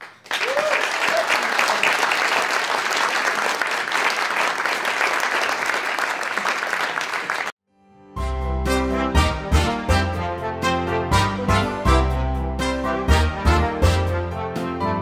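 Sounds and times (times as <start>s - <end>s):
audience applauding: 0.0s - 7.6s
music: 7.7s - 15.0s.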